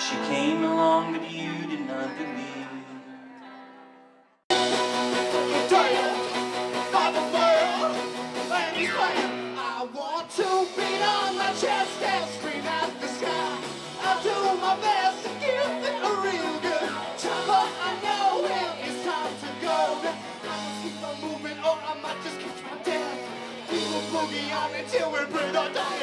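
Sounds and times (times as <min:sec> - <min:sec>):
electric guitar: 0:04.5 - 0:09.6, 0:10.6 - 0:26.0
drums: 0:04.5 - 0:26.0
several voices singing: 0:05.2 - 0:26.0.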